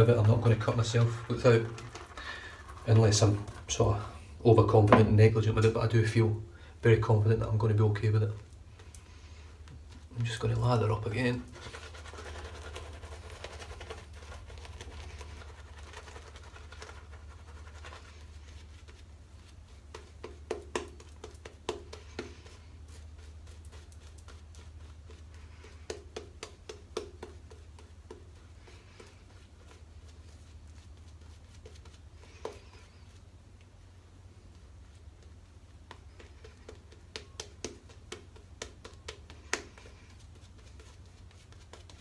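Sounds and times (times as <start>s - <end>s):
shaving brush wet scratching: 0.0s - 4.0s, 7.3s - 42.0s
sharp clicks and taps: 35.8s - 39.9s.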